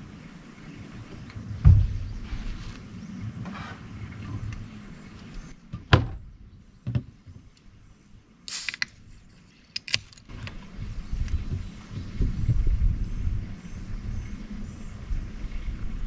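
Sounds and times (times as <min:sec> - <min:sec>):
short hiss: 0:08.5 - 0:09.2.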